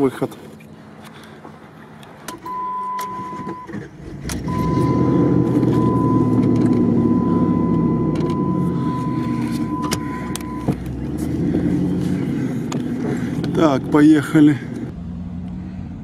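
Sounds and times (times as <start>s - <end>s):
car engine cranking and running: 0.1s - 16.0s
electronic warning beep: 2.4s - 3.7s, 4.5s - 10.8s.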